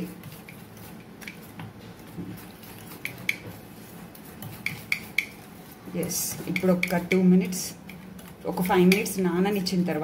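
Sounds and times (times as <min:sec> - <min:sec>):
batter squishing: 0:00.0 - 0:10.0
whisk wires clicking on bowl: 0:00.0 - 0:10.0.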